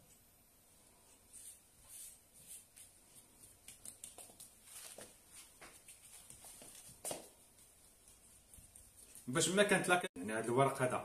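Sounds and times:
pastry sheets rustling: 1.0s - 9.6s.

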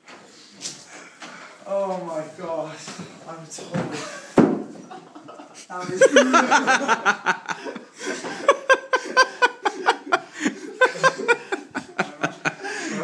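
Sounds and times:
man laughing: 5.0s - 13.0s.

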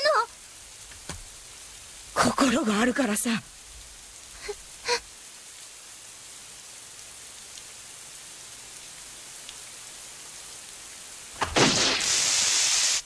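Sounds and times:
heavy rain: 0.0s - 13.0s
loud burst of noise: 11.4s - 13.0s.

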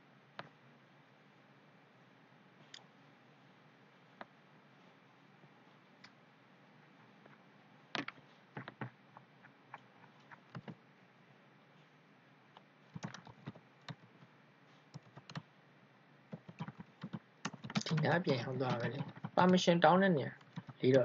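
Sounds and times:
keyboard typing: 8.0s - 9.0s, 9.7s - 10.8s, 12.9s - 14.3s, 14.9s - 15.5s, 16.3s - 21.0s.

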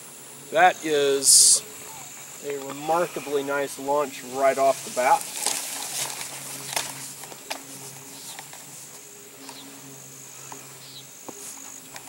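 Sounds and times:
insects trilling: 0.0s - 12.0s
low hum: 0.0s - 12.0s.

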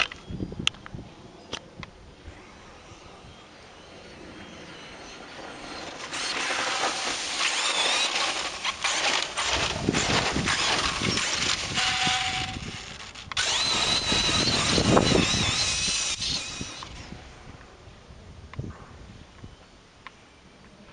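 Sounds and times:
electric motor whining: 2.3s - 17.3s
tyres rushing on loose dirt: 5.3s - 16.9s.

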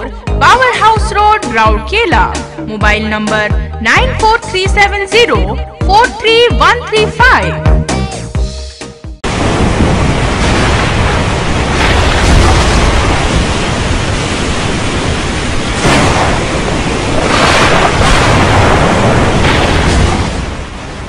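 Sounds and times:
heavy rain: 9.2s - 21.0s
wind: 9.2s - 21.0s.

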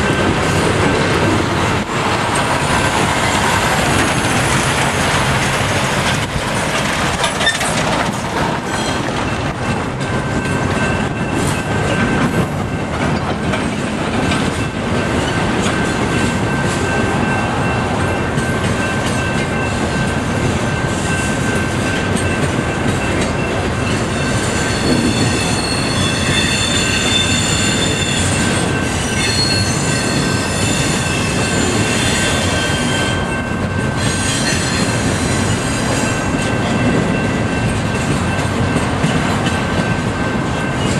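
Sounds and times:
train wheels clattering over rail joints: 0.0s - 16.9s, 33.6s - 40.9s
high-pitched wheel squeal: 24.2s - 33.4s, 34.0s - 36.0s.

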